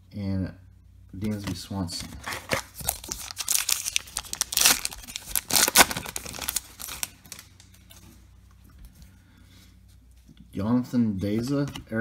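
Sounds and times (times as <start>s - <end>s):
card pack wrapper tearing: 2.2s - 7.7s.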